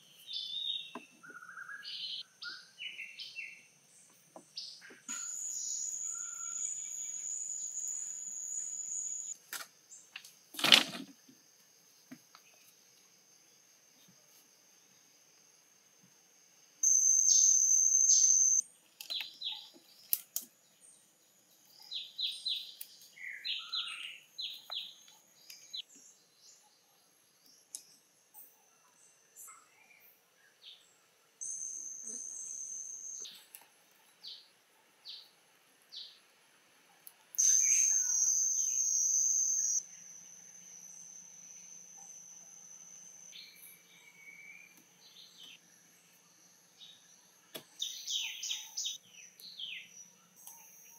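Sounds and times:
bird chirps and calls: 0.3 - 3.6, 21.8 - 25.9, 47.8 - 50.9
high insect buzz: 5.2 - 9.4, 16.8 - 18.6, 37.4 - 47.2.

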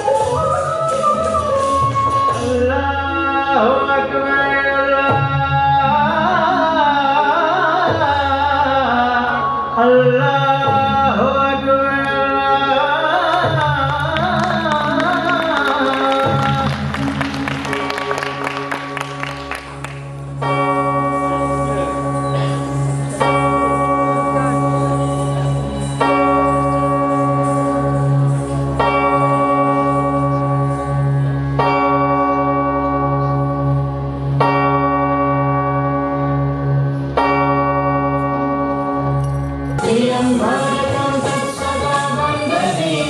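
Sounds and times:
busier dance music passage: 0.0 - 6.7, 11.7 - 43.0
low drone: 16.2 - 43.0
bell-like tone ringing: 20.4 - 30.9.

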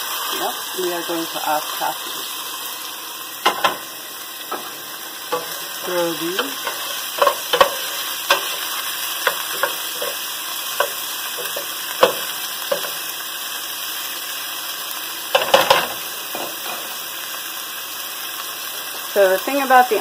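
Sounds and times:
food sizzling in hot oil: 0.0 - 20.0
utensil scraping a pot: 4.6 - 13.0.

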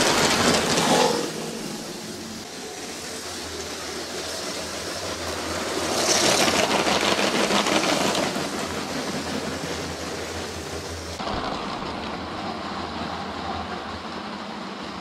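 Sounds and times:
wheels clicking on track: 0.0 - 15.0.

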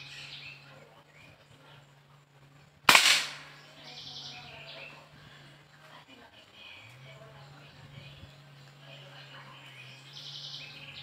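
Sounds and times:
air rifle shot: 2.9 - 3.6.

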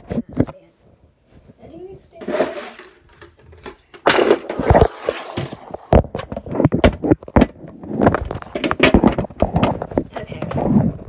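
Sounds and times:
rubbing on microphone: 4.6 - 11.0.

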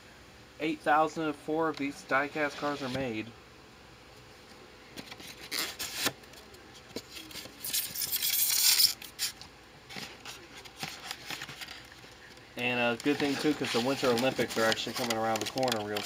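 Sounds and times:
hands rustling plastic wrap: 12.9 - 16.0.

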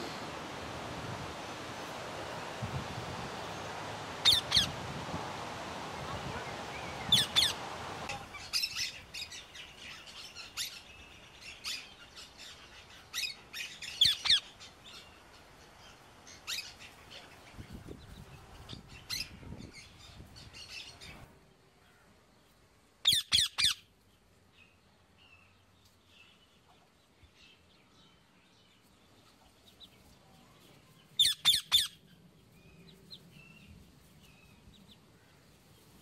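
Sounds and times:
steady outdoor hiss: 0.0 - 36.0
parrots squawking: 4.2 - 4.8, 6.8 - 8.9.

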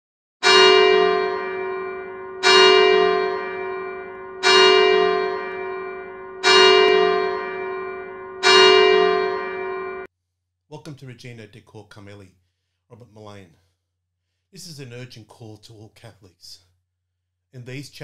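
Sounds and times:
church bell tolling: 0.4 - 10.1.

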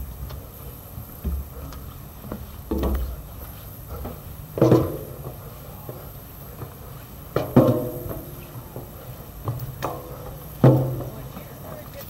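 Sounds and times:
footsteps on metal stairs: 0.0 - 12.0.

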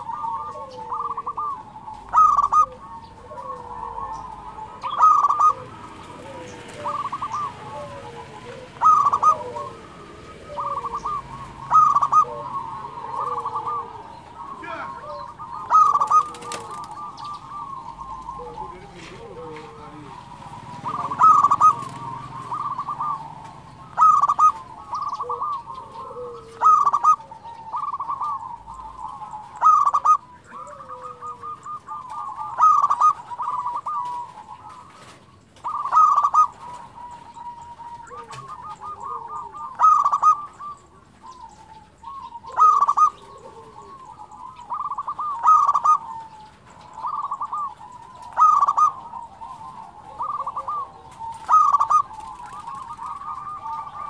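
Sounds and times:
dove cooing with trill: 0.0 - 54.0.

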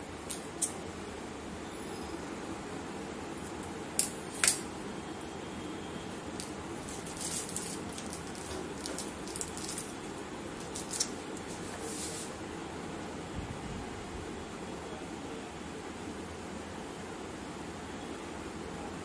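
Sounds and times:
plastic bag crinkling: 6.4 - 11.3.

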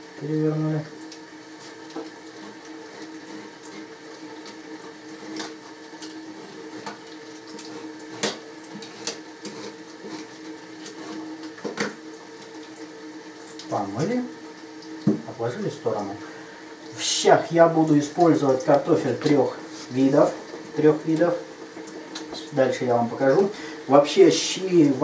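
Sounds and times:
tap running into sink: 6.8 - 12.1, 14.8 - 15.4
peeler scraping potato skin: 7.6 - 11.2.

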